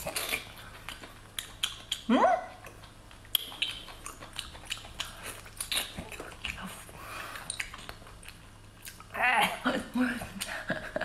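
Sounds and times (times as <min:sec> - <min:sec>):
wet eating sounds: 0:00.0 - 0:10.6.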